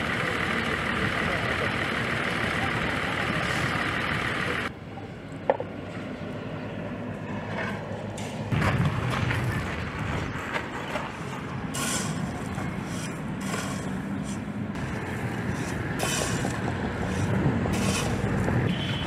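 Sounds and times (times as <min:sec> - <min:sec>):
steady machine noise: 0:00.0 - 0:04.7, 0:11.7 - 0:19.0
low vehicle rumble: 0:00.0 - 0:19.0
stone slabs and shovels scraping: 0:10.1 - 0:18.5.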